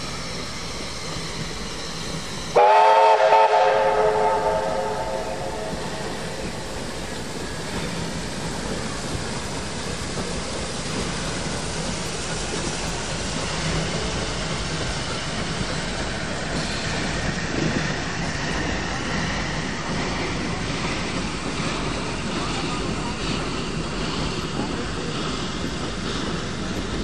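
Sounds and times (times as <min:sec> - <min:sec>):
steam train wheels rumbling: 0:00.0 - 0:27.0.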